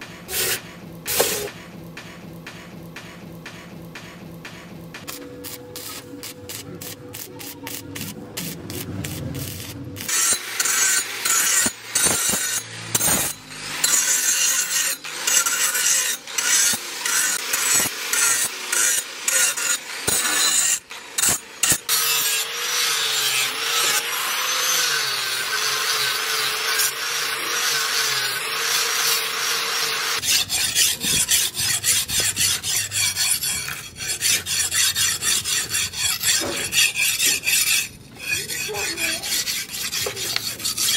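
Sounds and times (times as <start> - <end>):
angle grinder grinding steel: 5.0 - 40.9
blade stroked on sharpening stone: 10.0 - 22.4, 25.8 - 40.9.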